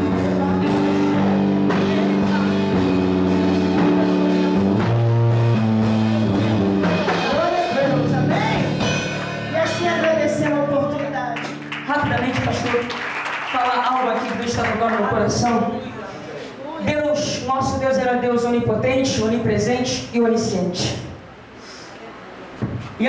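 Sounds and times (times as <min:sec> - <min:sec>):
gospel band music: 0:00.0 - 0:23.0.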